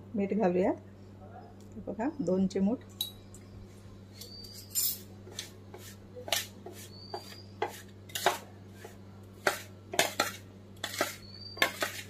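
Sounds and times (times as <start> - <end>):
spoon scraping metal pan: 5.3 - 8.4, 9.4 - 12.0.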